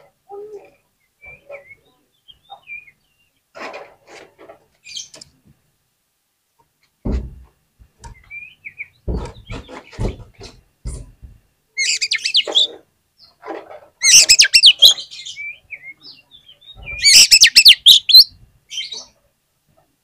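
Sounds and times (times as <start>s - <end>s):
bird chirping and whistling: 11.8s - 12.5s, 14.0s - 16.0s, 16.8s - 18.9s.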